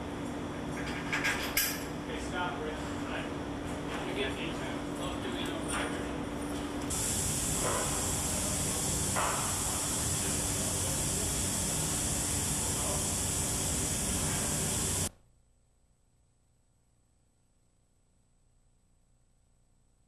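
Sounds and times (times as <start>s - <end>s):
steady hiss: 6.9s - 15.1s.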